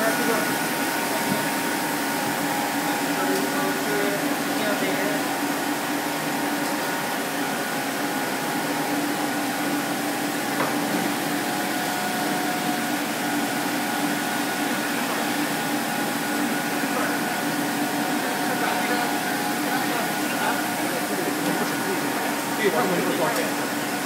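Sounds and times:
machinery whirring hum: 0.0 - 24.0.

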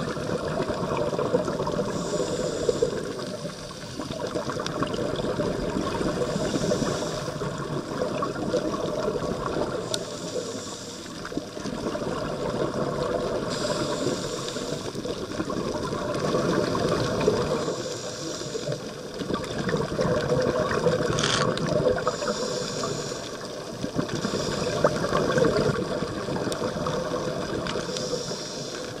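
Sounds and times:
bubbling exhaled air: 0.0 - 29.0
diver inhaling through regulator: 1.7 - 4.2, 6.0 - 7.8, 9.7 - 11.4, 13.3 - 15.2, 17.0 - 19.0, 21.9 - 25.8, 26.7 - 29.0.

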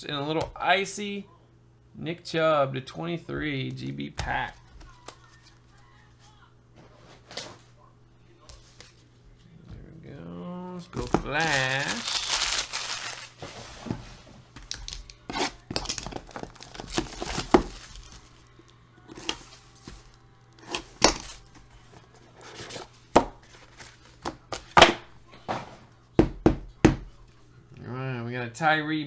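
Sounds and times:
shrink-wrap ripping: 11.0 - 13.4, 14.6 - 18.3.

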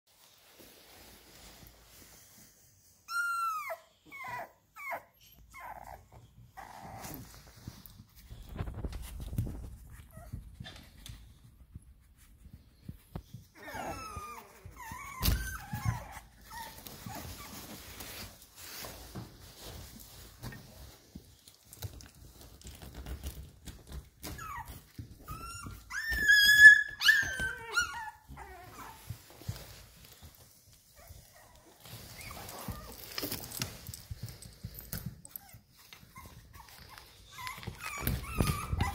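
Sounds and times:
puppies crying and squealing: 3.0 - 7.8, 13.5 - 18.2, 24.2 - 29.8, 31.0 - 34.4, 35.3 - 38.9.

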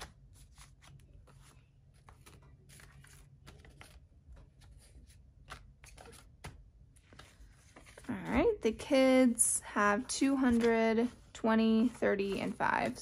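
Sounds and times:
banknotes rustling: 0.0 - 9.0, 9.8 - 13.0.

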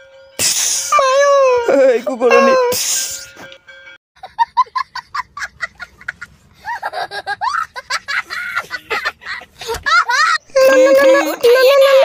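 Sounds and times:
young child laughing: 5.4 - 12.0.

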